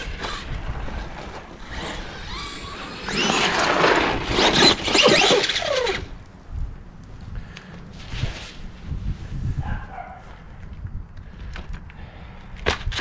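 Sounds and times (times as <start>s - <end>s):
rc truck electric motor whining: 0.0s - 6.2s
tyres on dirt: 0.0s - 9.0s, 10.3s - 13.0s.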